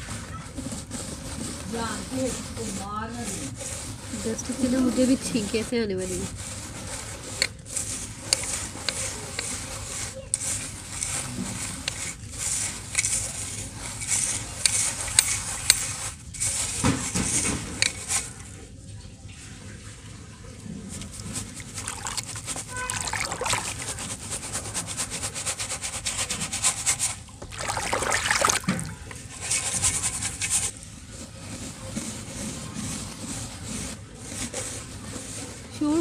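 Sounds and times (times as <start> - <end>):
dirt showering onto water: 21.0 - 24.3, 27.4 - 29.3.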